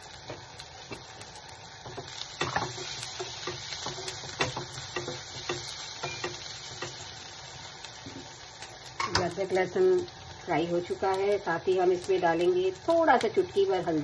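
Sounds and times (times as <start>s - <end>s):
onion frying in a pan: 0.0s - 14.0s
wooden spatula scraping a pan: 1.8s - 7.0s.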